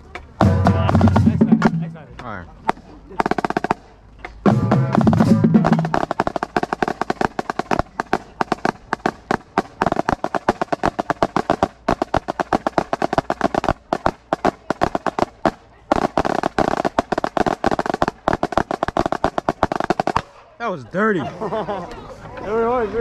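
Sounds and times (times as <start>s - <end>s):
marching snare drum: 0.4s - 2.1s, 2.7s - 20.3s.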